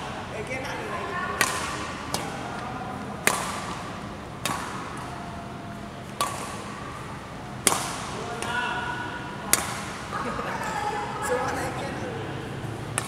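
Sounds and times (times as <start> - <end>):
racket striking shuttlecock: 1.4 - 5.1, 6.0 - 8.6, 9.4 - 10.1.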